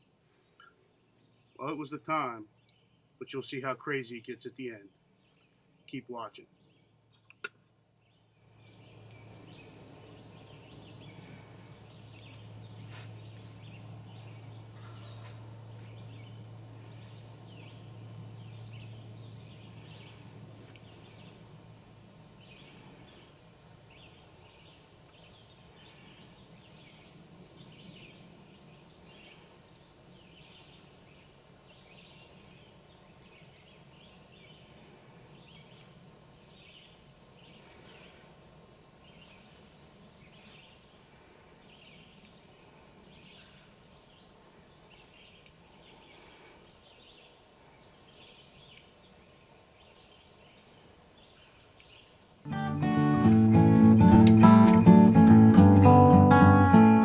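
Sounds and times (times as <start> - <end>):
small birds chirping: 0.0 - 57.0
low steady hum: 6.5 - 49.8.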